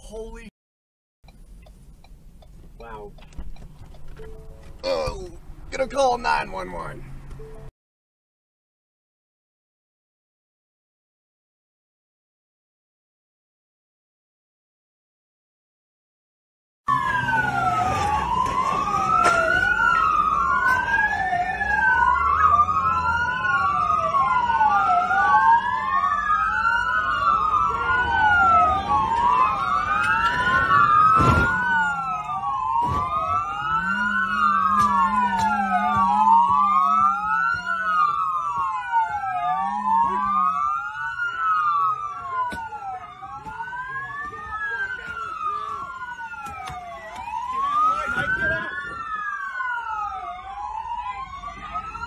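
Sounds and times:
police sirens wailing: 16.9s - 52.0s.

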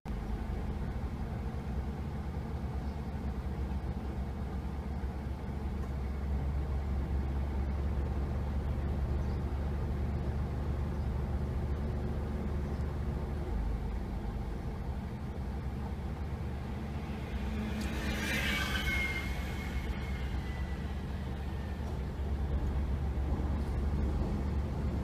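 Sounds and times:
low rumble of road traffic: 0.1s - 25.0s
tram squealing: 15.3s - 24.6s.

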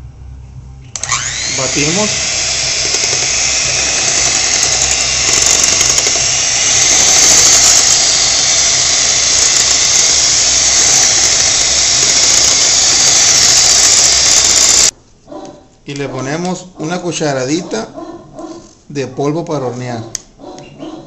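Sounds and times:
electric hand mixer whining: 0.9s - 14.9s.

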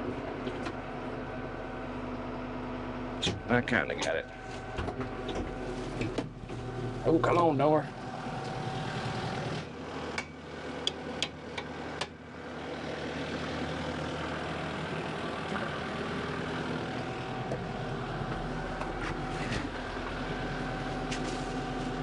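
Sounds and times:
tractor diesel engine idling: 0.0s - 22.0s.

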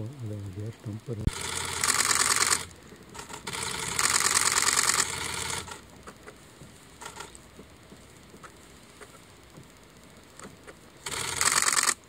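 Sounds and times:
camera shutters clicking in bursts: 1.3s - 5.8s, 7.0s - 7.4s, 10.4s - 12.0s.

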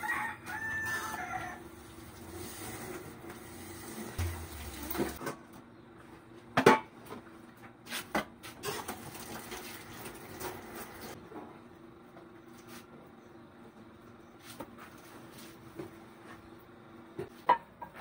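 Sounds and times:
scrubbing dishes: 2.3s - 5.2s.

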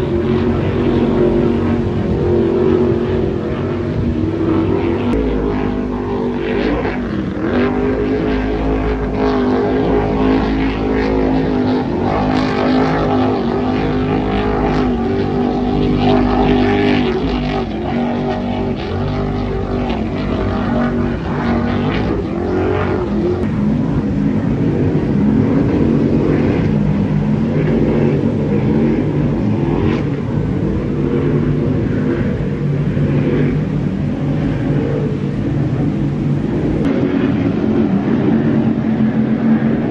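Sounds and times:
powerboat engines passing at speed: 0.0s - 39.9s.

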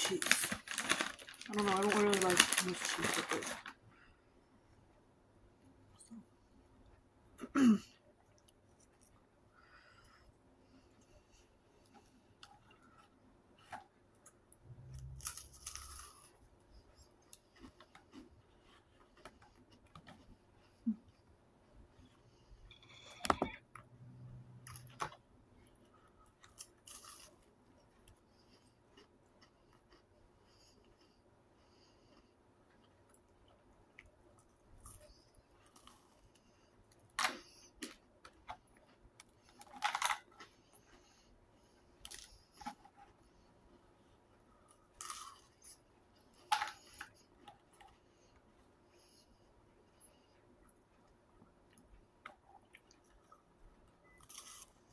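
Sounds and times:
plastic tray crackling: 0.0s - 3.8s
cracker chewing: 11.9s - 20.4s, 25.7s - 31.2s, 44.6s - 48.5s, 50.6s - 54.9s.

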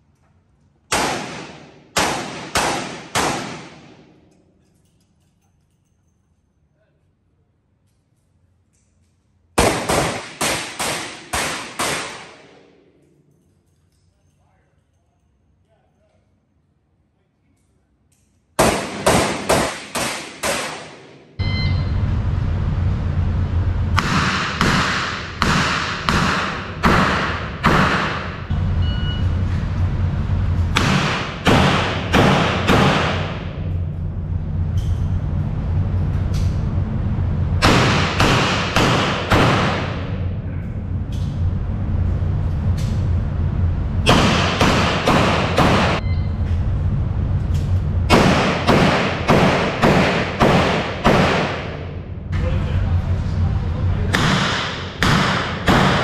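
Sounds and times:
steady low hum: 0.0s - 56.0s
revolver gunshots echoing: 0.9s - 4.3s, 9.6s - 12.8s, 18.6s - 21.4s, 24.0s - 28.5s, 30.7s - 33.7s, 37.6s - 40.4s, 44.0s - 46.0s, 48.1s - 52.0s, 54.1s - 56.0s.

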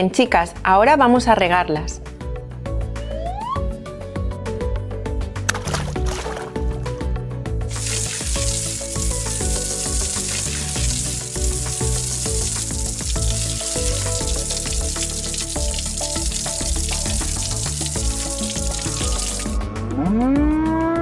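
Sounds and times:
background music: 0.0s - 21.0s
watering can spray hissing: 7.7s - 19.6s.

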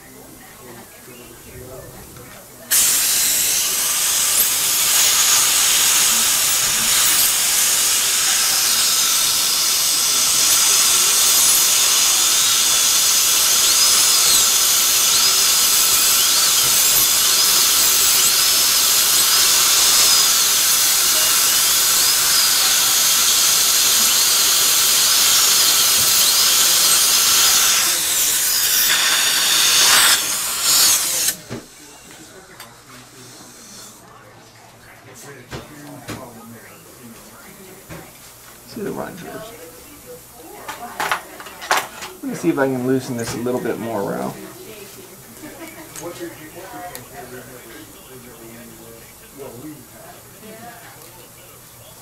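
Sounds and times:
air and water spray hiss: 2.7s - 31.4s
dental drill whining: 2.7s - 34.0s, 38.7s - 39.6s.

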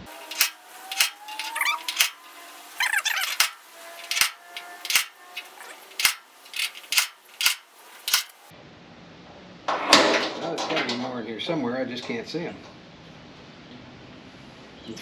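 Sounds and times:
sheet metal creaking: 0.0s - 8.5s.

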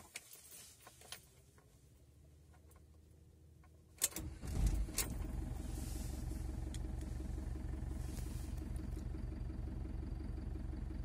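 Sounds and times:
diesel engine idling: 4.2s - 11.0s.

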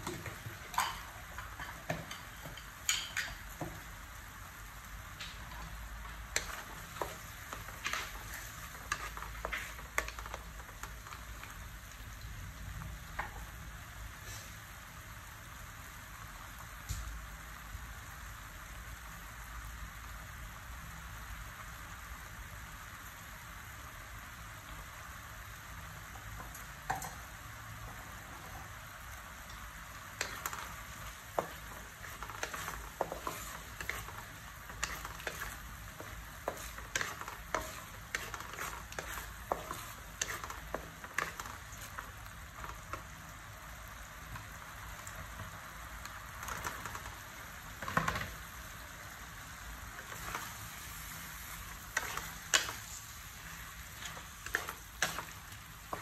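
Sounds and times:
meat sizzling in a wok: 0.0s - 56.0s
wooden spatula scraping a pan: 5.4s - 11.5s, 30.1s - 43.1s, 50.0s - 56.0s.

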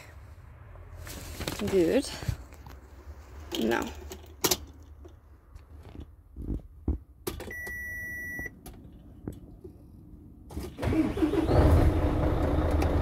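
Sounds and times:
electronic beep: 7.5s - 8.5s
diesel engine running: 10.7s - 13.0s.

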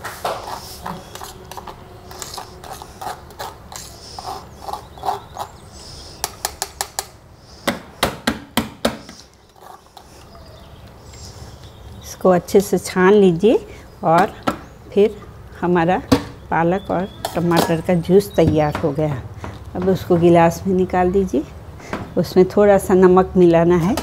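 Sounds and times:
knife scraping metal strainer: 0.1s - 5.6s.

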